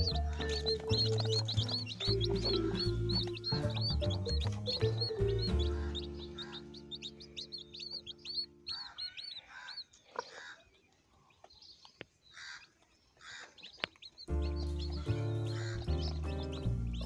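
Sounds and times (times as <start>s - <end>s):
background music: 0.0s - 9.3s, 14.3s - 17.0s
chicks peeping: 0.0s - 17.0s.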